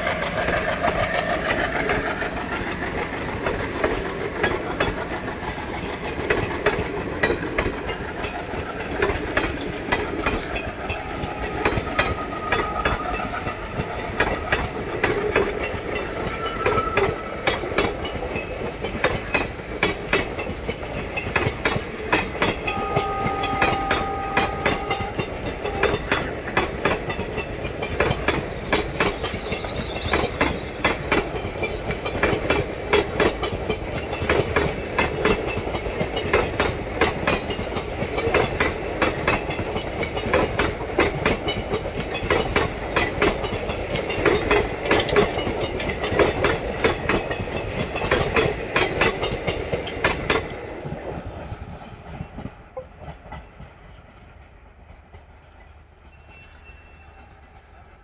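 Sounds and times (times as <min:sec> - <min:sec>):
train wheels clattering: 0:00.0 - 0:58.0.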